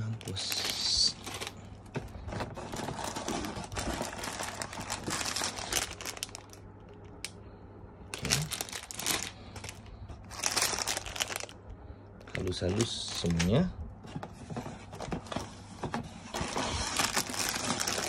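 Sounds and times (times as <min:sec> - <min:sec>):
plastic bags crinkling: 0:00.0 - 0:07.3, 0:08.1 - 0:11.6, 0:12.2 - 0:13.7, 0:16.3 - 0:18.0.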